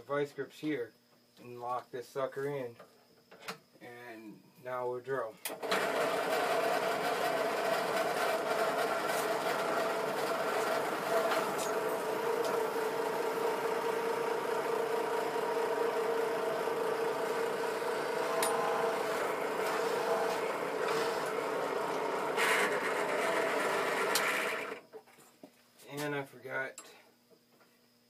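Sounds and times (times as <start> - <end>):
drill press motor humming: 5.5 - 25.0
drill bit drilling metal: 5.6 - 24.8.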